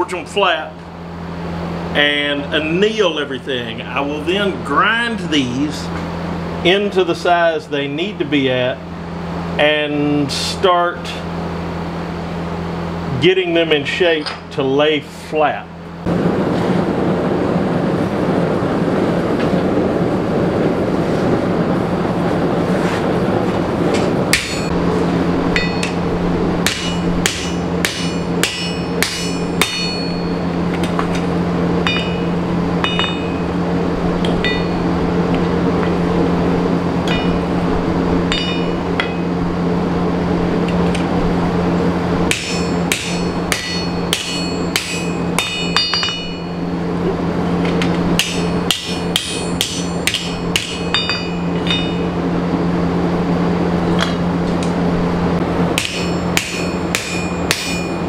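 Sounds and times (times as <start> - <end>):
forge low drone: 0.0 - 58.0
hammer striking hot steel on anvil: 24.0 - 24.8, 25.6 - 26.0, 26.6 - 33.6, 34.2 - 35.0, 37.0 - 37.5, 38.3 - 39.3, 42.3 - 46.6, 47.7 - 52.2, 55.7 - 58.0.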